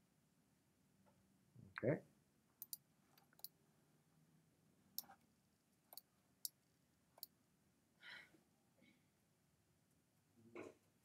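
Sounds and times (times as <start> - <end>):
mouse and keyboard clicks: 2.6 - 3.6, 5.0 - 5.2.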